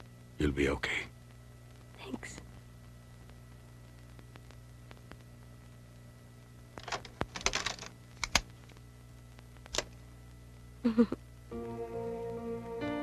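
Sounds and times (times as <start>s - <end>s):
cassette deck keys clicking: 6.8s - 8.5s
cassette deck plastic clicks and rattles: 6.8s - 8.5s.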